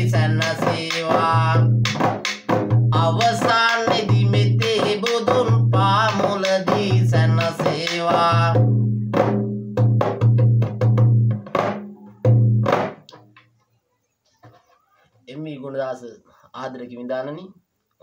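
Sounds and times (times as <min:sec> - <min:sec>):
frame drum beaten by hand: 0:00.0 - 0:13.3
man chanting: 0:02.9 - 0:08.6.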